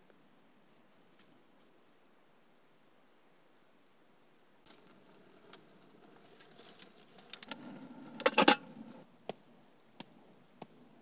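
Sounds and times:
kindling crackling and snapping: 0:04.7 - 0:09.4.

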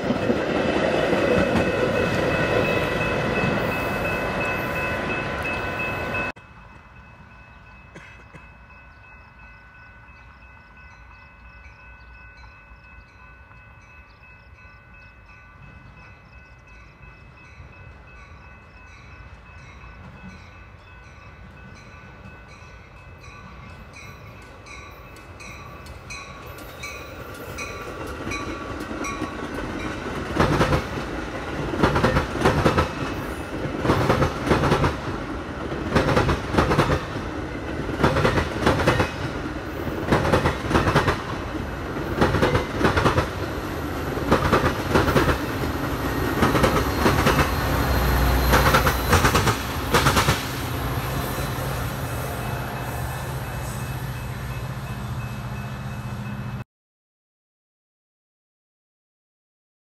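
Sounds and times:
deep train rumble: 0:00.0 - 0:56.6
train wheels clicking over rail joints: 0:24.2 - 0:50.8.

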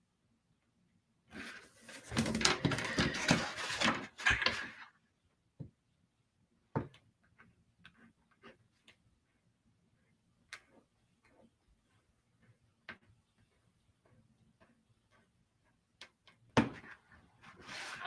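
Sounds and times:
paper scraping and rustling: 0:01.4 - 0:04.8, 0:17.4 - 0:18.0.

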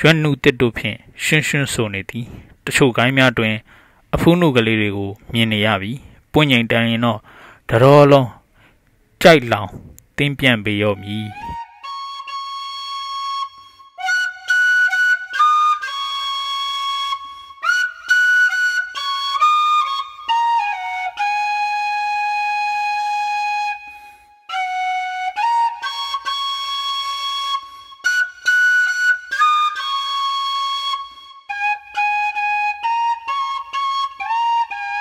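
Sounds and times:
solo flute melody: 0:10.9 - 0:35.0.

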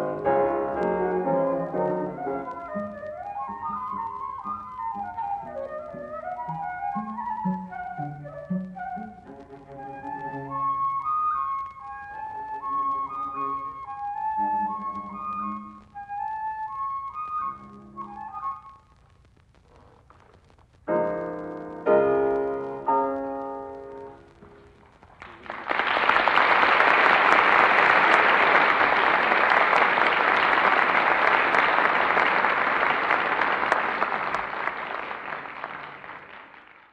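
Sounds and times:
piano chords: 0:00.0 - 0:18.6, 0:20.9 - 0:24.5
audience applause: 0:24.5 - 0:36.9.

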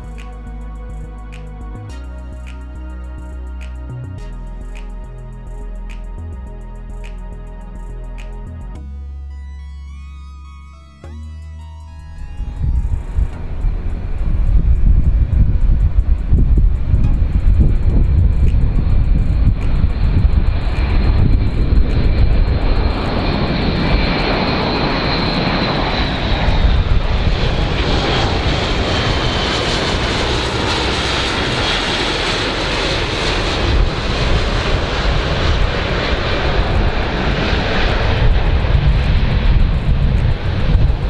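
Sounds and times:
propeller whine: 0:00.0 - 0:41.0
turboprop aircraft flying past: 0:12.2 - 0:41.0.

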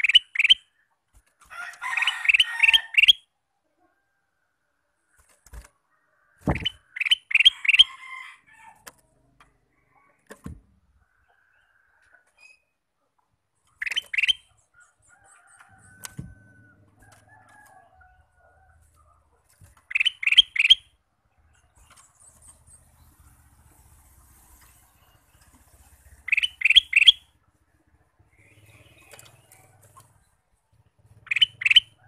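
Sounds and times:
bird singing: 0:00.0 - 0:00.9, 0:01.8 - 0:03.3, 0:06.4 - 0:08.0, 0:13.6 - 0:16.8, 0:19.8 - 0:23.8, 0:24.6 - 0:32.0.

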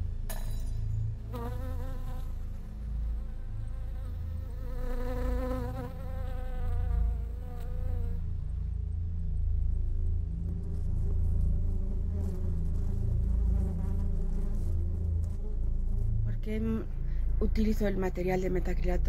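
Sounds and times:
low rumble: 0:00.0 - 0:19.0
insect-like buzzing: 0:01.2 - 0:08.3.

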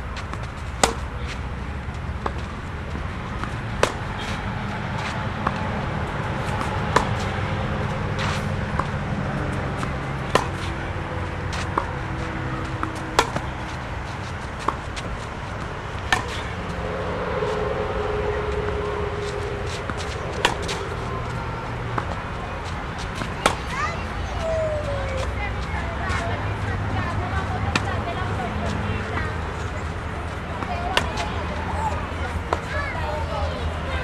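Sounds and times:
steady low rumble: 0:00.0 - 0:33.9
tennis racket hitting ball: 0:00.3 - 0:01.5, 0:02.1 - 0:17.6, 0:19.2 - 0:25.4, 0:27.2 - 0:28.2, 0:30.6 - 0:31.4.

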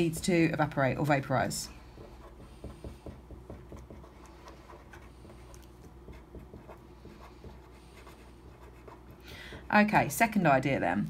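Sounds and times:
low steady hum: 0:00.0 - 0:11.0
marker scratching on paper: 0:01.8 - 0:09.8.

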